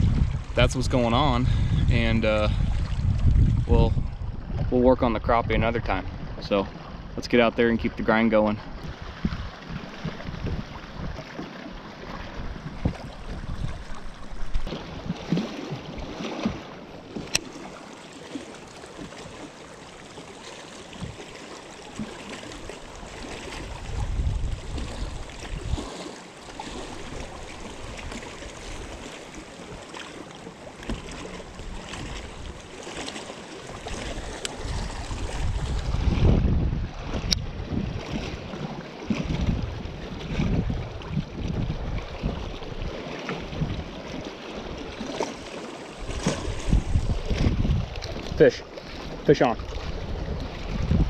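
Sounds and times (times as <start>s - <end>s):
wind gusting on microphone: 0.0s - 8.0s, 8.6s - 11.2s, 12.2s - 16.2s, 23.5s - 26.0s, 33.8s - 43.9s, 45.4s - 48.5s, 49.1s - 51.0s
water lapping at boat: 0.0s - 51.0s.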